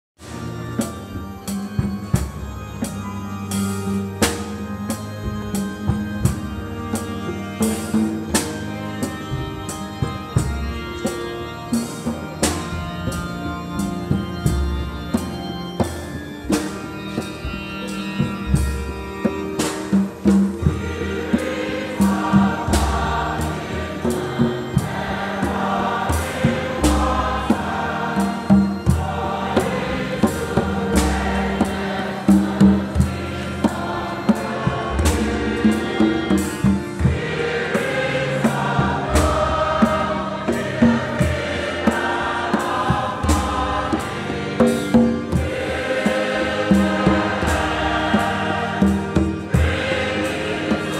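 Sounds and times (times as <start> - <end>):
choir and congregation singing gospel: 3.5 - 50.9
hand drums and percussion: 15.8 - 37.6, 38.6 - 50.9.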